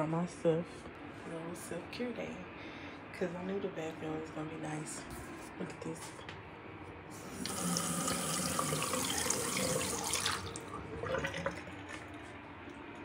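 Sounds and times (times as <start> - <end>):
tap water running into sink: 7.3 - 12.1.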